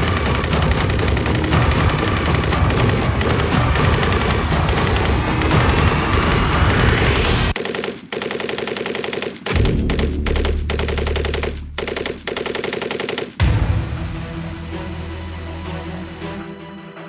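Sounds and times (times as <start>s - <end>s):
music: 0.0s - 7.6s, 13.4s - 17.0s
machine gun firing bursts: 0.0s - 13.6s.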